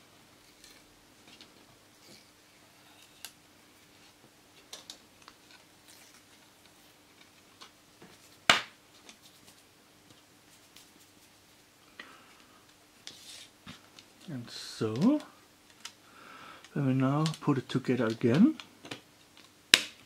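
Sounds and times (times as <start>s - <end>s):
plastic cd case clicks and taps: 18.3s - 20.0s.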